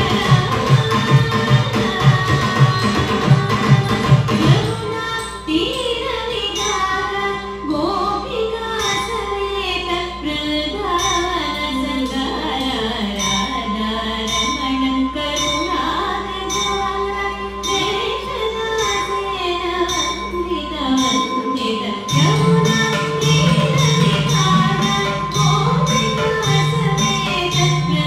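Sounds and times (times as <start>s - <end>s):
woman singing: 0.0s - 28.0s
light percussive strikes: 22.1s - 28.0s.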